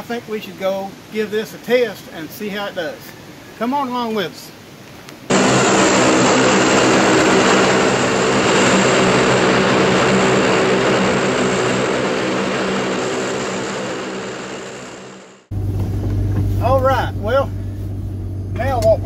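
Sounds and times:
droning hum: 5.3 - 19.0
propeller rushing whirr: 5.3 - 19.0.

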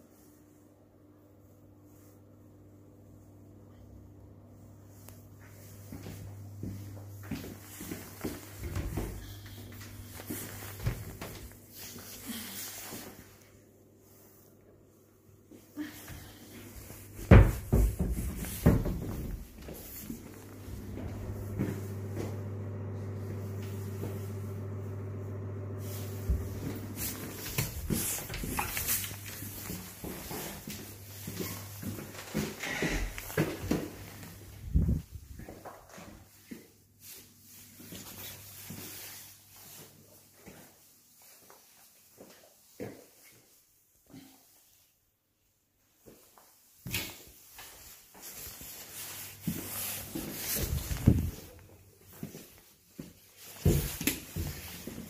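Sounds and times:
low electrical hum: 0.0 - 40.3, 47.4 - 55.0
footsteps: 5.0 - 13.4, 16.0 - 43.4, 46.0 - 55.0
handling knocks and rustles: 16.7 - 22.1, 26.0 - 36.2, 46.8 - 55.0.

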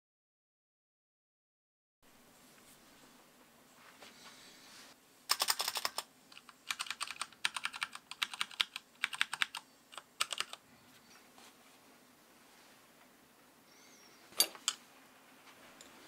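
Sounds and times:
mechanical keyboard keys clacking: 5.3 - 10.6.

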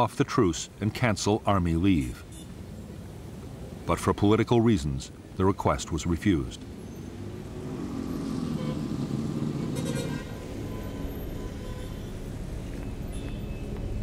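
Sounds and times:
motorcycle and car traffic: 5.2 - 14.0
engine speeding up: 7.1 - 13.1.

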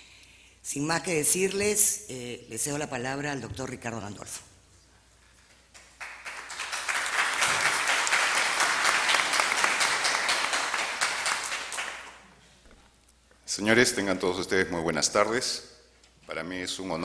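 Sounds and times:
audience applauding: 5.8 - 12.3.

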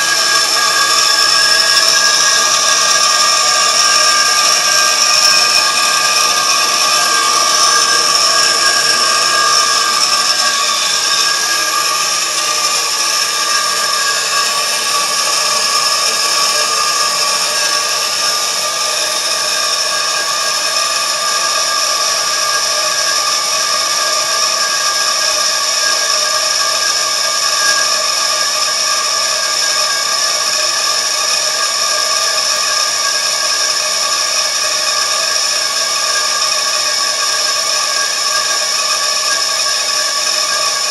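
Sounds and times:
air hissing: 0.0 - 18.5
air compressor running: 0.0 - 40.9
compressor whining tones: 0.0 - 40.9.

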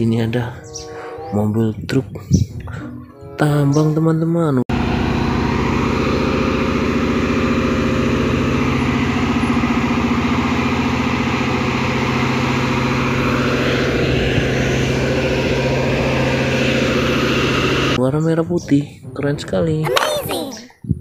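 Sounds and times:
truck diesel engine humming: 0.0 - 1.7, 4.7 - 18.0.

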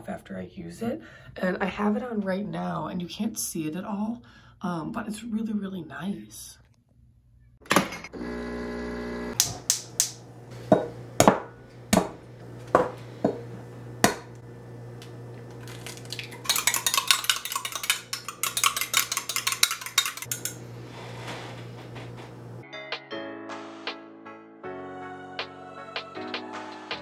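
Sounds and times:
dishes and utensils knocking: 10.7 - 14.3, 16.5 - 20.6
fork whisking eggs in glass bowl: 16.1 - 20.6.

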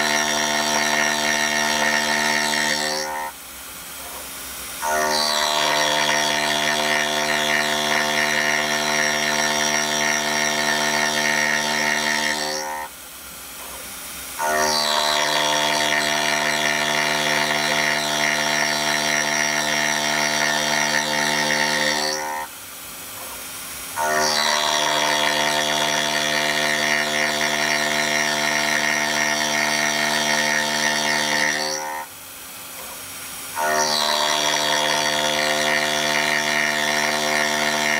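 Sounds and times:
milling cutter cutting steel: 0.0 - 3.4, 4.0 - 12.9, 13.6 - 22.5, 23.2 - 32.1, 32.8 - 37.9
spindle whirring: 14.4 - 22.5.

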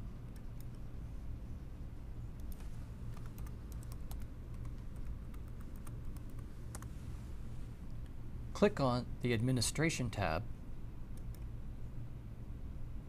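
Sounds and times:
steady low hum: 0.0 - 13.0
computer keyboard typing: 2.4 - 6.9.

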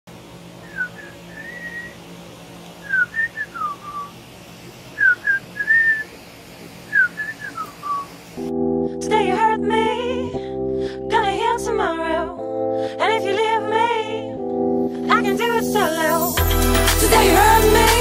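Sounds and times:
steady low hum: 0.1 - 15.9
whistled phrases: 0.6 - 2.0, 2.8 - 4.2, 5.0 - 6.1, 6.9 - 8.1
music: 8.4 - 18.0.

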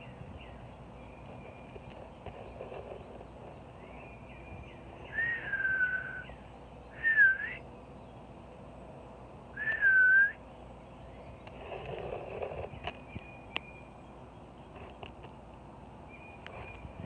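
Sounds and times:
person whistling: 5.1 - 6.2, 7.0 - 7.6, 9.6 - 10.4.

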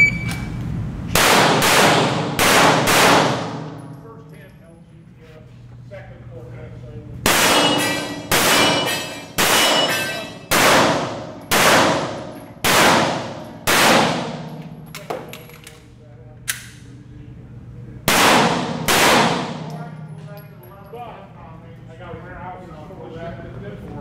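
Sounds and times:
echoing pistol shots: 1.1 - 3.7, 7.3 - 9.9, 10.5 - 14.6, 18.1 - 19.8.

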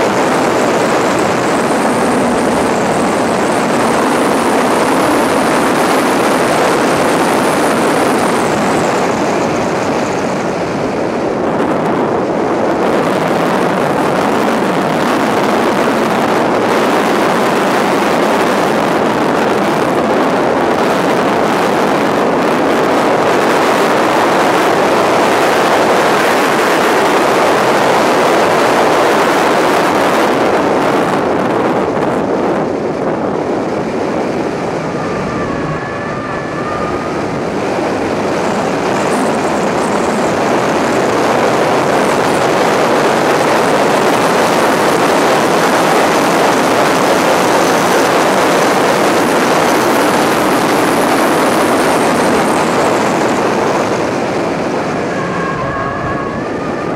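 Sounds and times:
car engine running hard: 0.0 - 56.9
wind rushing over microphone: 0.0 - 56.9
faint wavering high tone: 34.5 - 38.3, 54.6 - 56.9.

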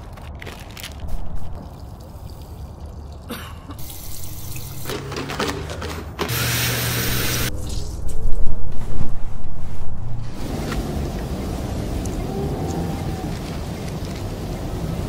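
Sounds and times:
water trickling: 1.5 - 4.9
running water rush: 10.4 - 15.0.

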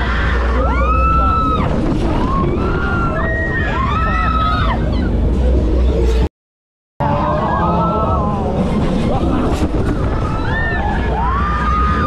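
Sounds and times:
wind rumble on microphone: 0.0 - 6.2, 7.0 - 12.0.

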